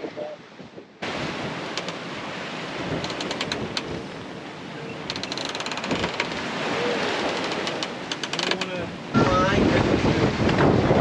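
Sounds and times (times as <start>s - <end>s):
water rushing past a boat: 0.0s - 11.0s
wind rushing: 9.1s - 11.0s.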